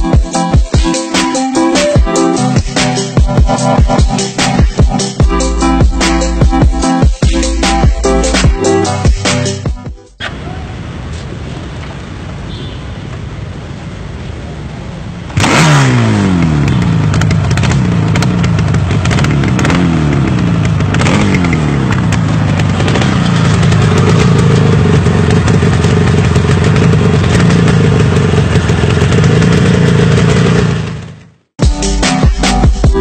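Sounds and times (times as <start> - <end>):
exhaust crackles: 15.3 - 31.2
motorcycle engine revving: 15.3 - 31.4.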